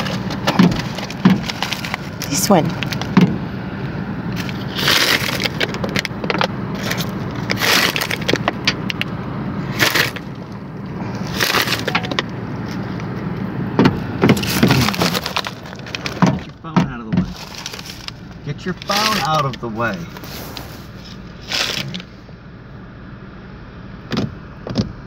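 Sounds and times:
feathers brushing against phone: 20.1s - 21.8s.

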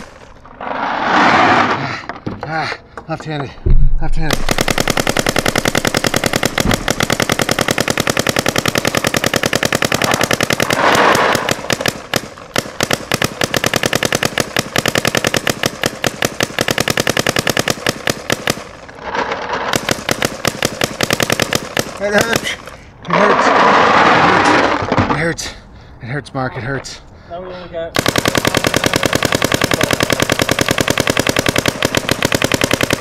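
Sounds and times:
rattling rush of noise: 0.0s - 2.1s
paintball marker rapid firing: 4.3s - 18.8s, 19.6s - 22.7s, 28.0s - 33.0s.

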